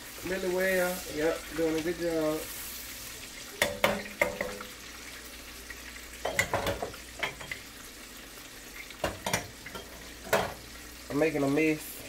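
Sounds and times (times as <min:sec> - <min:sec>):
whisking in a skillet: 0:00.0 - 0:04.7
fish sizzling in oil: 0:00.0 - 0:12.0.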